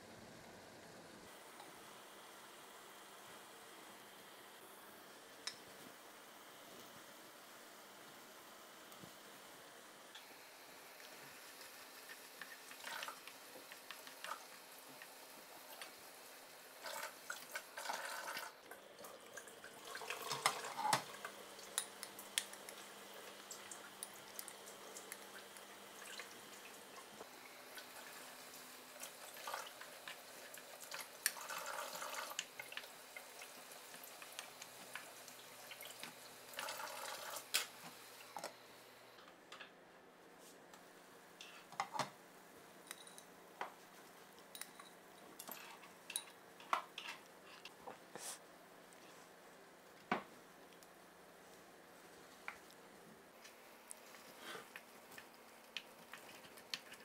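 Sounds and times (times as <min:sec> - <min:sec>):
sauce simmering: 0:10.2 - 0:38.3.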